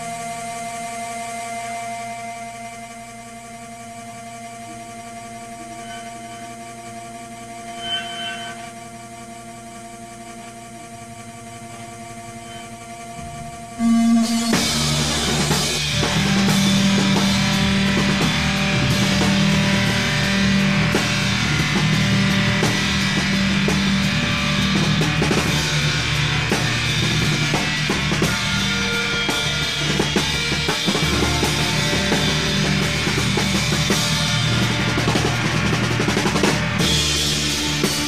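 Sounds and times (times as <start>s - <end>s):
rock band playing: 13.2s - 38.0s.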